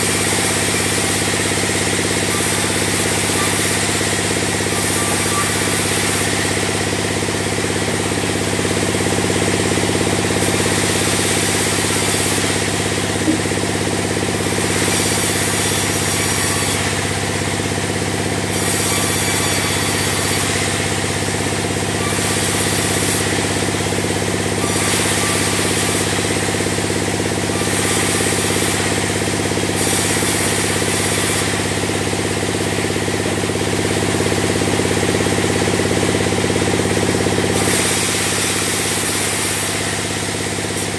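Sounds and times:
sawmill machinery drone: 0:00.0 - 0:40.9
saw hiss: 0:10.3 - 0:17.0, 0:24.5 - 0:31.9, 0:37.5 - 0:40.9.

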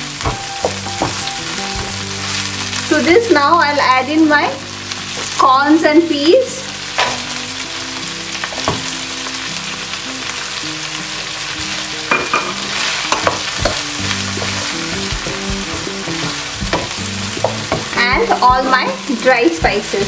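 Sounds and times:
vegetables sizzling in butter: 0:00.0 - 0:20.0
spatula scraping and knocking pan: 0:12.2 - 0:18.9.

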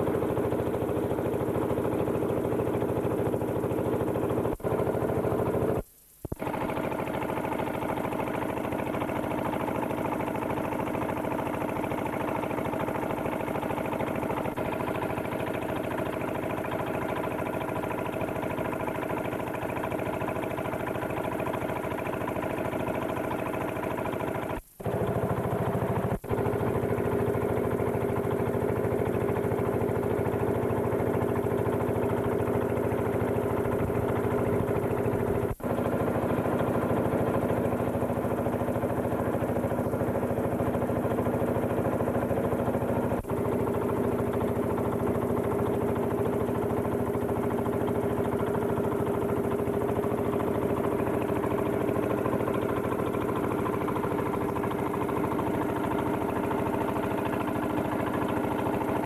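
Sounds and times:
engine running steadily: 0:00.0 - 0:59.0.

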